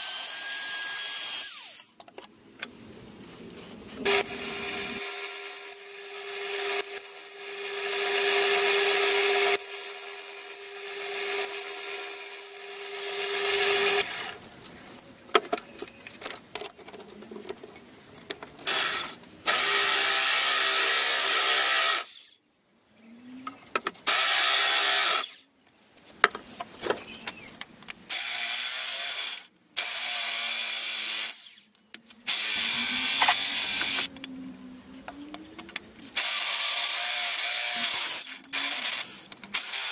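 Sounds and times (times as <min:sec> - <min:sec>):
clicks and handling: 0:14.4 - 0:18.7, 0:33.2 - 0:36.2
power drill boring into metal: 0:32.3 - 0:34.1, 0:36.2 - 0:39.9.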